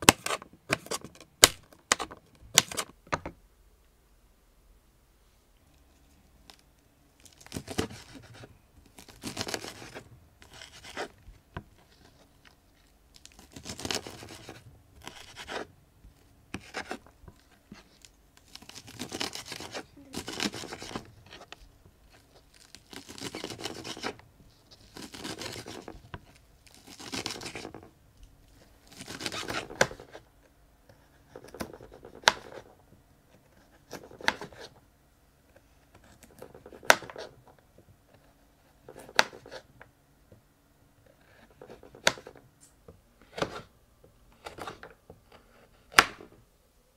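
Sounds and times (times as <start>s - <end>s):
knife slicing crisp lettuce: 7.4s - 11.2s, 13.3s - 15.7s, 18.5s - 21.5s, 22.5s - 24.2s, 24.8s - 25.9s, 26.7s - 27.7s, 28.9s - 30.2s.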